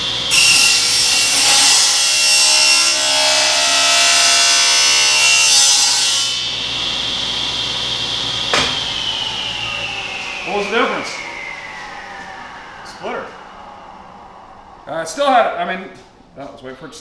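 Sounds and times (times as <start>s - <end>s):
table saw cutting board: 0.0s - 14.1s
saw blade whine: 0.0s - 15.9s
sharp knock: 8.5s - 8.9s.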